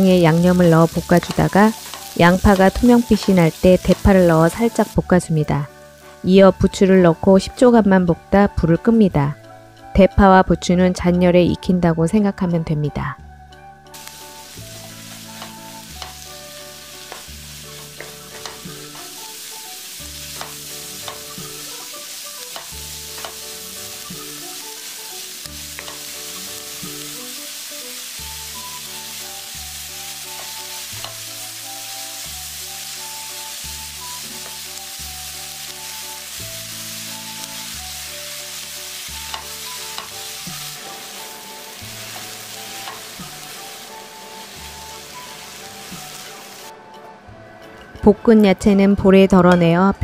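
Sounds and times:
vegetables sizzling in oil: 0.0s - 9.8s, 13.9s - 46.7s.

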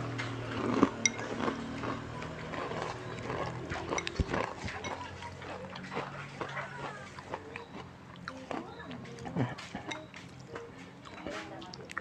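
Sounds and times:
chewing with wet mouth clicks: 0.1s - 12.0s
chopsticks scraping in a bowl: 9.1s - 10.4s.

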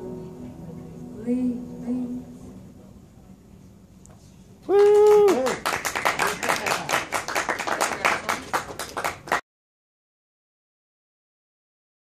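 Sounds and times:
person cheering: 4.7s - 5.6s
hand clapping: 4.7s - 9.4s.

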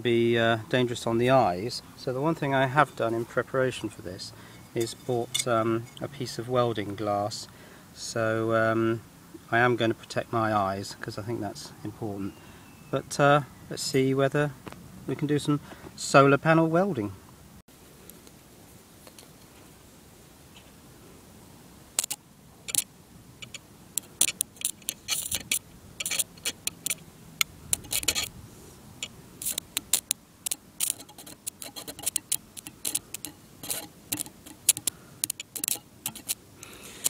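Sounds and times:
electric arc crackling and snapping: 23.4s - 27.0s, 27.7s - 28.3s, 29.0s - 37.0s.

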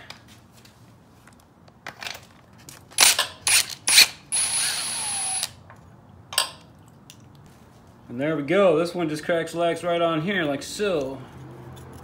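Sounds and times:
cordless impact wrench: 3.0s - 5.6s.

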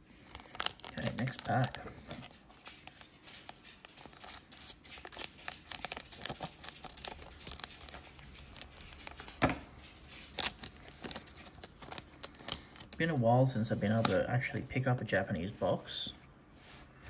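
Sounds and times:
foil wrapper crinkling: 0.1s - 13.0s
scissors cutting: 2.9s - 9.2s.

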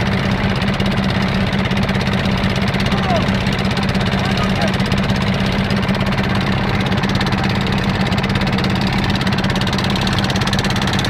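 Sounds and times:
motorboat engine running: 0.0s - 11.0s.

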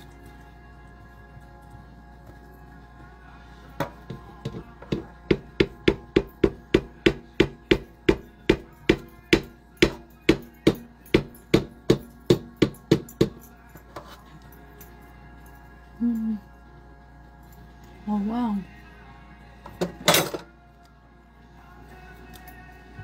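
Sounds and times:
spoon knocking on plastic cup: 3.8s - 13.4s.

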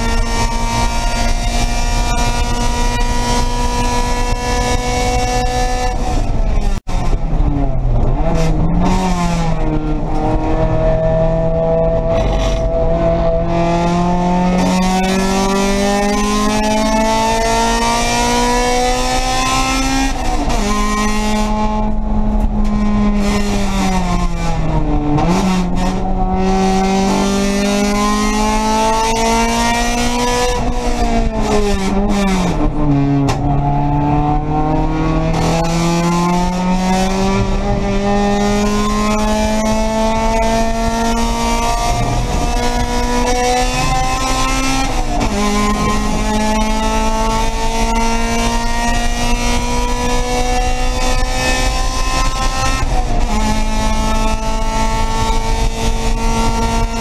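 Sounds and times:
race car engine accelerating: 0.0s - 57.0s.

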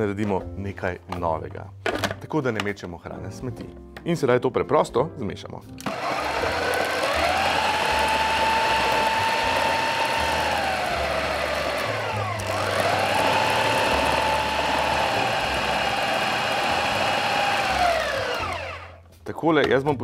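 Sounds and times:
food processor motor whining: 5.8s - 19.0s.

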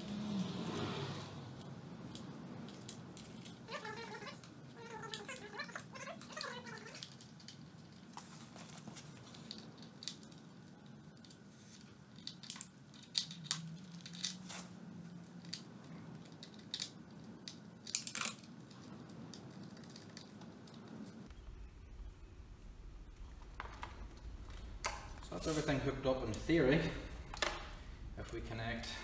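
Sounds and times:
faint low hum: 0.0s - 29.0s
plastic connectors clicking: 9.3s - 14.5s.

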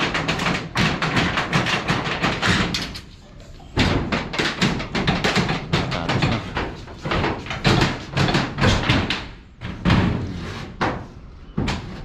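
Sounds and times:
metal roofing sheets clattering: 0.0s - 12.0s.

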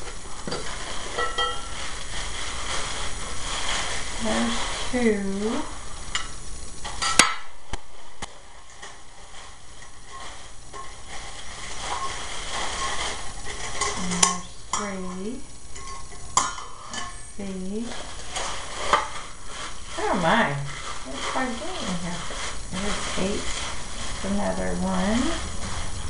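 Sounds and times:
metal cookware clinking: 0.0s - 1.9s, 6.1s - 7.5s, 9.8s - 17.4s
plastic wrapping crinkling: 0.0s - 26.0s.

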